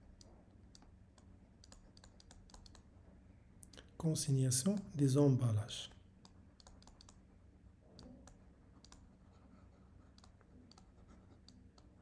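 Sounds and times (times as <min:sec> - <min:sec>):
faint irregular clicks: 0:00.0 - 0:02.9, 0:05.9 - 0:07.2, 0:07.9 - 0:09.2, 0:10.1 - 0:12.0
low steady hum: 0:00.0 - 0:12.0.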